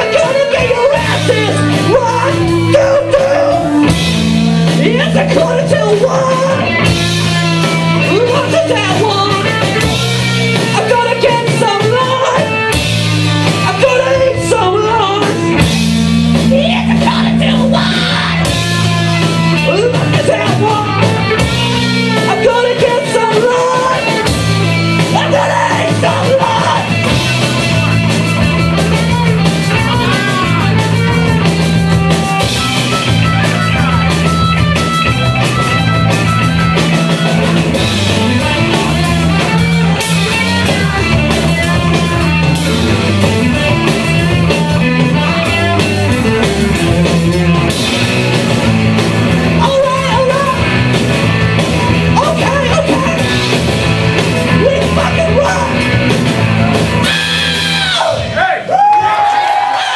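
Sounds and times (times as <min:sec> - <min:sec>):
man singing: 0:00.0 - 0:06.9, 0:08.0 - 0:12.6, 0:13.4 - 0:15.6, 0:16.4 - 0:18.9, 0:19.5 - 0:21.1, 0:22.1 - 0:24.3, 0:25.0 - 0:28.0
drums: 0:00.0 - 0:59.9
electric guitars: 0:00.0 - 0:59.9.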